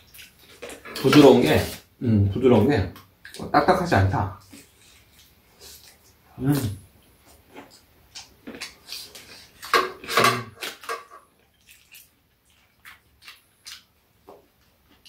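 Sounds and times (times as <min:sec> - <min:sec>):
chewing: 0:11.3 - 0:15.0.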